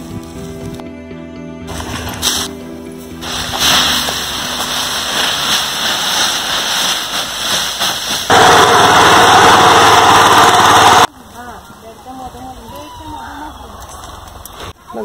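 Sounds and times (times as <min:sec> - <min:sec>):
loud steady rushing hiss: 0:01.7 - 0:11.1
dry leaves crackling and rustling: 0:01.7 - 0:13.5.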